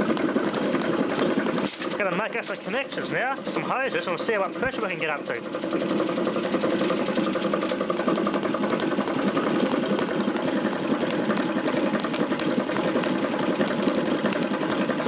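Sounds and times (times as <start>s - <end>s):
air compressor rattling: 0.0s - 15.0s.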